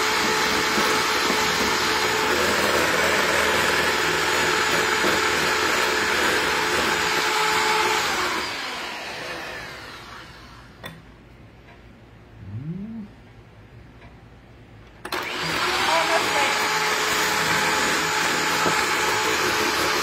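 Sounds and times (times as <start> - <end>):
hand mixer whipping egg whites: 0.0 - 10.4, 15.1 - 20.0.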